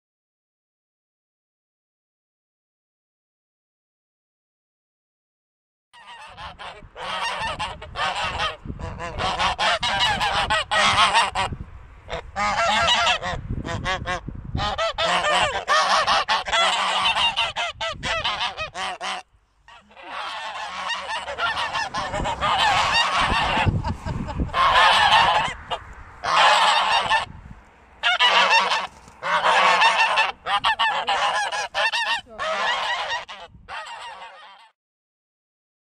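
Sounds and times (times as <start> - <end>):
geese honking: 6.0 - 27.3, 28.0 - 34.8.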